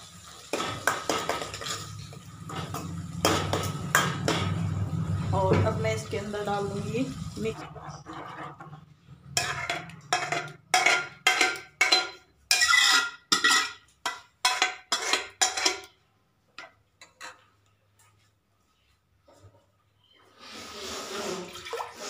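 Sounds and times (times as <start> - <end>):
ladle scraping metal pot: 7.4 - 15.9.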